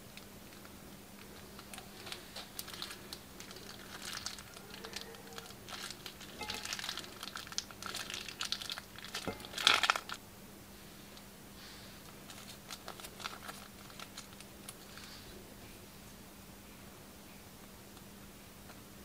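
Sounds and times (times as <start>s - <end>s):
plastic piping bag crinkling: 0.0s - 10.2s, 12.0s - 15.2s.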